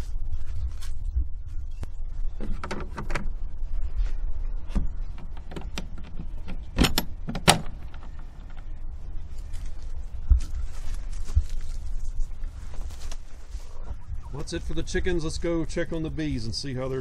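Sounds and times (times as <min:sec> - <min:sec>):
metal latch clicking and clacking: 0:05.1 - 0:08.7.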